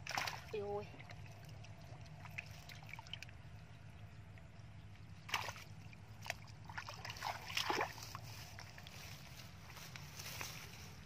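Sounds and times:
feet splashing in muddy water: 0.0s - 3.2s, 5.2s - 9.3s.

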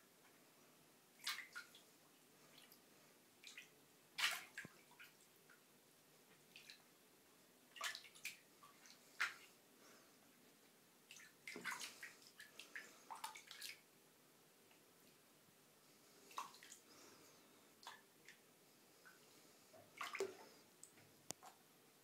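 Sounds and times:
small water splashes and drips: 1.2s - 2.8s, 3.4s - 5.6s, 6.3s - 6.9s, 7.7s - 9.5s, 11.1s - 13.9s, 16.2s - 17.0s, 17.8s - 18.4s, 19.8s - 21.6s.

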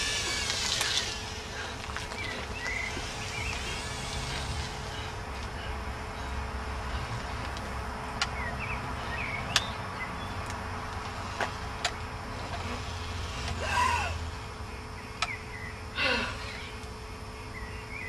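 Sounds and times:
pitched motor burst: 0.0s - 5.2s
wheelchair electric motors running: 0.0s - 18.0s
sharp clicks: 9.5s - 9.8s.

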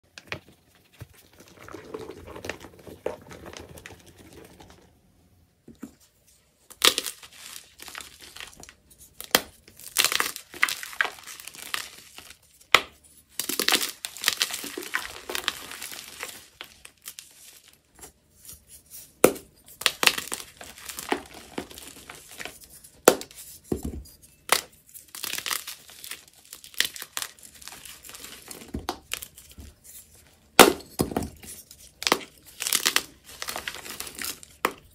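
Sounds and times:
hands crushing chalk blocks: 6.7s - 23.8s, 24.4s - 34.9s.

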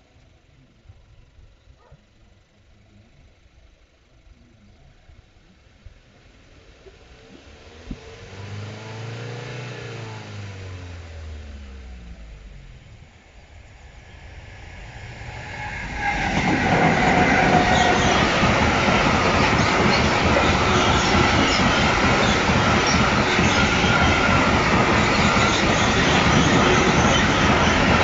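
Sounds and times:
road vehicle passing: 7.5s - 28.0s
freight train wheels rumbling: 12.3s - 28.0s
thin wheel squeal: 15.3s - 28.0s.

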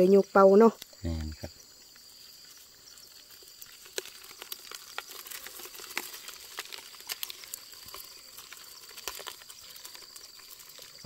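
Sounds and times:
crackles and splashes in muddy water: 0.0s - 11.0s
high insect drone: 0.0s - 11.0s.

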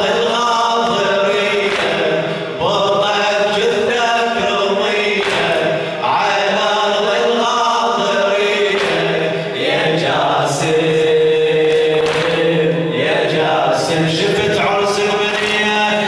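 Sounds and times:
man chanting into a microphone: 0.0s - 16.0s.

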